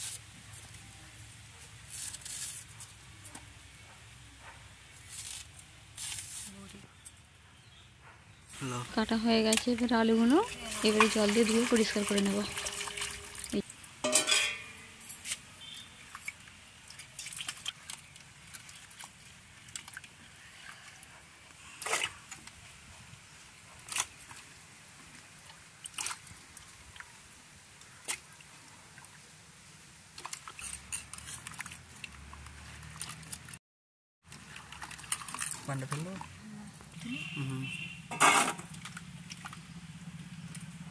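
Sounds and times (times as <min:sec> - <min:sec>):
water sloshing and dripping: 0:09.3 - 0:21.1, 0:21.7 - 0:22.8, 0:23.8 - 0:29.4, 0:30.0 - 0:33.6, 0:34.2 - 0:36.4, 0:38.2 - 0:40.8.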